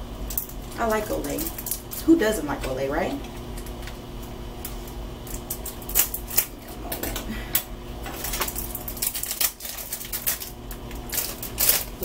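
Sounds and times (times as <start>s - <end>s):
paper wrapping crinkling: 0.3s - 2.1s, 4.6s - 7.2s, 8.0s - 12.0s.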